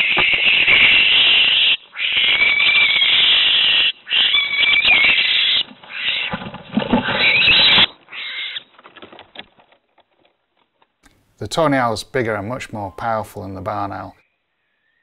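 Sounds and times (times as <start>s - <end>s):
owl screeching: 0.0s - 6.4s, 7.0s - 8.7s
scuffling: 4.9s - 11.0s.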